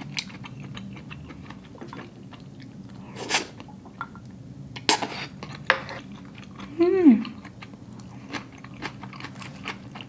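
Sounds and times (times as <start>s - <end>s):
chewing and slurping noodles: 7.3s - 10.0s.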